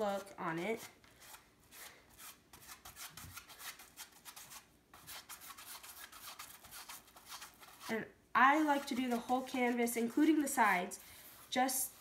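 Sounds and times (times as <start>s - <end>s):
paintbrush rubbing on canvas: 8.6s - 12.0s.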